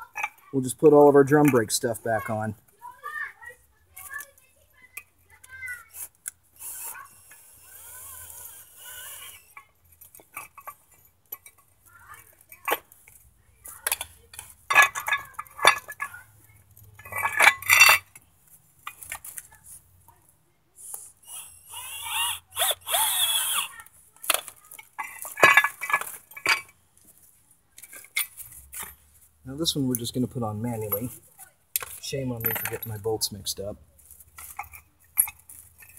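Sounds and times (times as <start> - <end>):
metal bracket scraping and squealing: 6.0 - 9.7
metallic clinks of bolts: 31.8 - 33.0.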